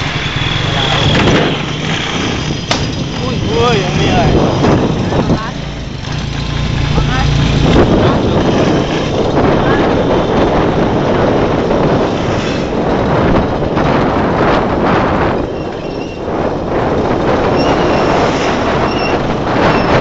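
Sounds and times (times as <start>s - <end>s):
motorized tricycle driving on road: 0.0s - 20.0s.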